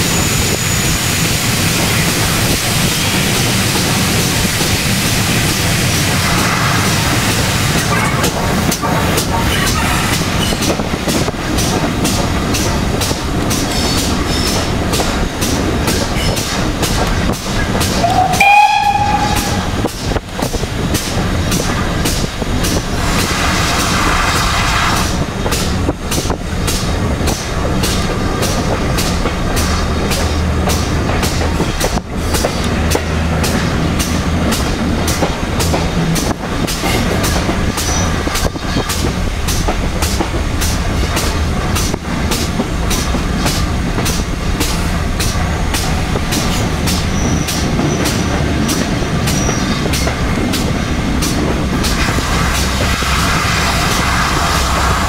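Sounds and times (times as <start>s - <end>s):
train rumble: 0.0s - 55.0s
train wheels clicking over rail joints: 0.0s - 55.0s
steam locomotive whistle: 18.0s - 19.8s.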